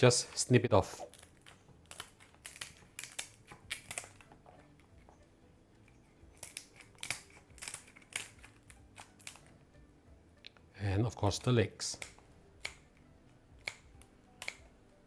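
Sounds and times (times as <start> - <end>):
scissors snipping shell: 1.1 - 4.3, 6.4 - 9.5, 11.9 - 14.7.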